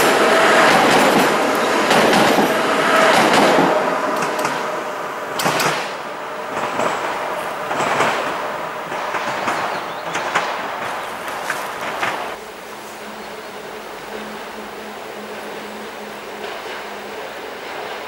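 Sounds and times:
wheels clacking over rails: 0.0 - 12.4
electric train rumble: 0.0 - 18.0.

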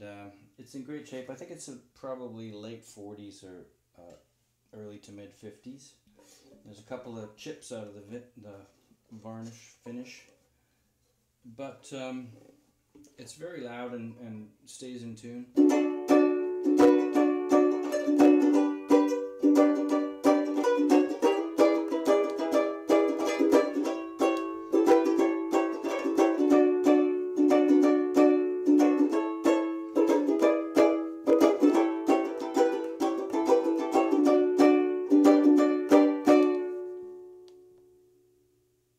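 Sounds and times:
banjo ukulele strummed: 15.5 - 37.4.

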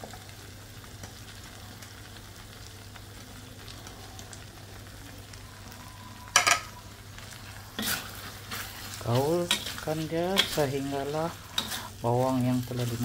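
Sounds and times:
sauce sizzling in a wok: 0.0 - 13.0.

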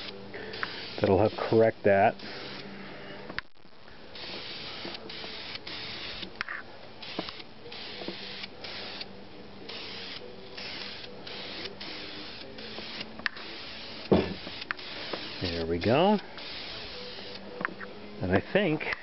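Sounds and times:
spray paint can hissing: 0.0 - 1.6, 2.2 - 2.6, 4.2 - 6.4, 7.0 - 9.1, 9.7 - 17.4.

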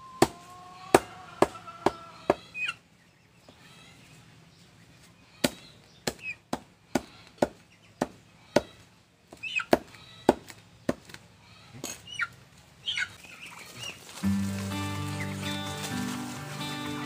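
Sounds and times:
knife chopping on wood: 9.3 - 11.2.

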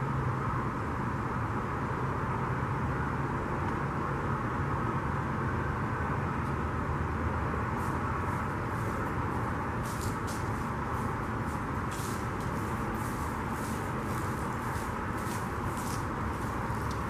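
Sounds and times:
low outdoor rumble: 0.0 - 17.0
footsteps on concrete: 7.9 - 17.0.

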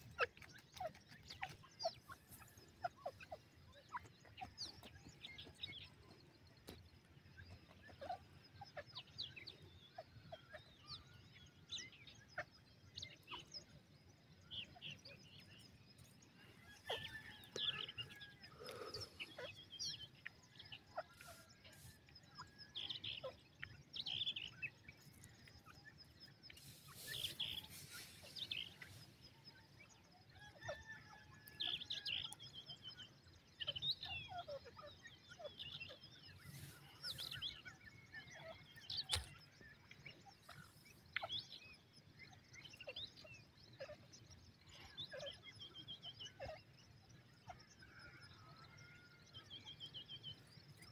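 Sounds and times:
birds chirping: 0.0 - 50.9.

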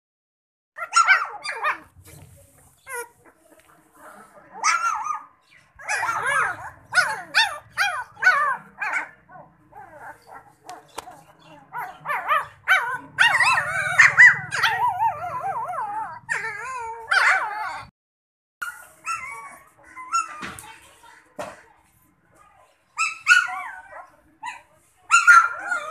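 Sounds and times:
puppies yelping: 0.8 - 1.9, 2.8 - 3.4, 4.5 - 17.9, 18.6 - 20.6, 23.0 - 25.9
puppies whining: 2.7 - 3.4, 4.6 - 17.9, 18.6 - 20.5, 23.0 - 25.9.

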